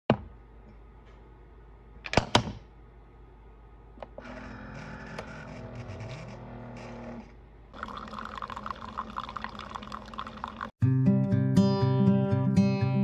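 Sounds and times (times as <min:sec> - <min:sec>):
coffee maker humming: 0:07.8 - 0:10.7.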